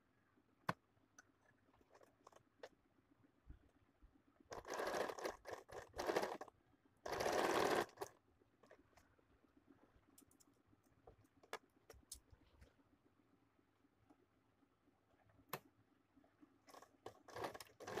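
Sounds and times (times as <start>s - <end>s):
sewing machine stitching: 4.5s - 8.2s, 16.7s - 18.0s.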